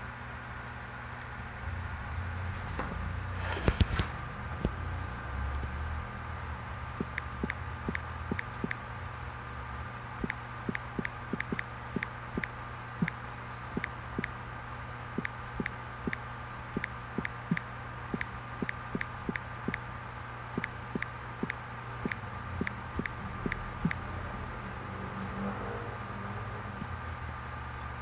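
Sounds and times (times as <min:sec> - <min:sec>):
compressor hum with whine: 0:00.0 - 0:28.0
sharp clicks: 0:07.0 - 0:08.8, 0:10.2 - 0:13.2, 0:13.8 - 0:14.4, 0:15.2 - 0:16.2, 0:16.8 - 0:19.8, 0:20.6 - 0:24.0.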